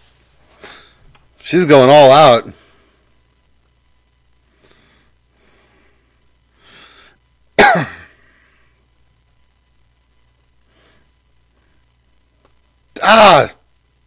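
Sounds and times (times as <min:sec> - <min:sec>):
breath in: 0:04.6 - 0:07.2
man coughing: 0:07.6 - 0:08.2.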